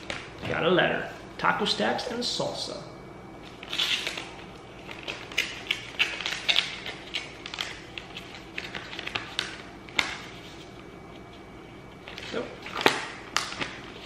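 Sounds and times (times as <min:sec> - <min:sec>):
paper crinkling and rustling: 0:03.4 - 0:11.4, 0:12.0 - 0:14.0.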